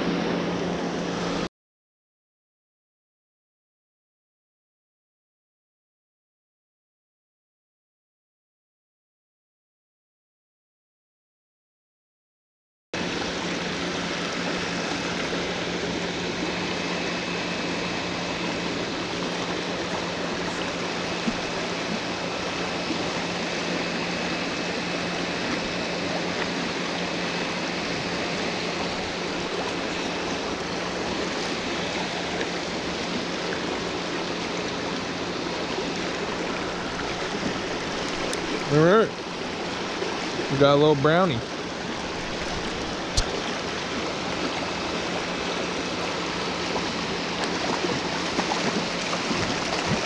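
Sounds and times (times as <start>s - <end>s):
fast-flowing creek water: 13.0s - 50.0s.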